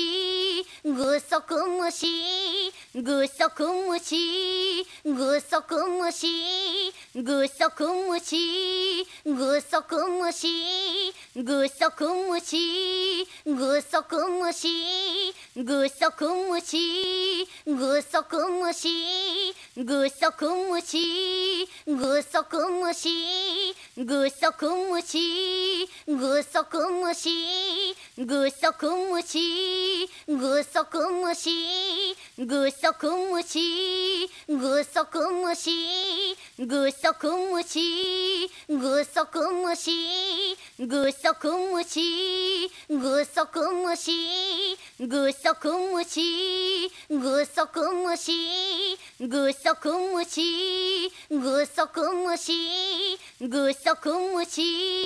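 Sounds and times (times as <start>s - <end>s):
girl singing a chant: 0.0s - 55.0s.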